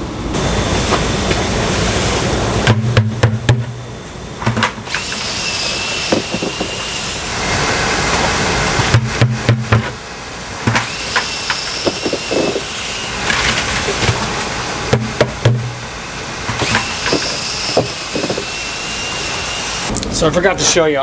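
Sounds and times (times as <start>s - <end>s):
cordless drill motor whining: 4.8s - 7.4s, 10.8s - 13.6s, 15.9s - 19.9s
plastic bucket knocks: 8.8s - 9.9s.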